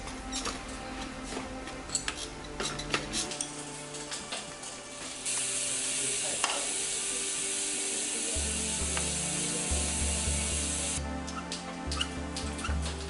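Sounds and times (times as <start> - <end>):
ratcheting buzz: 5.2 - 11.0
background music with pulsing beat: 8.4 - 13.0.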